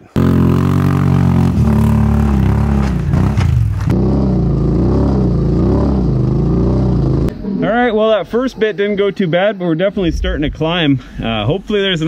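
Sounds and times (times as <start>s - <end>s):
quad engine revving: 0.0s - 7.3s.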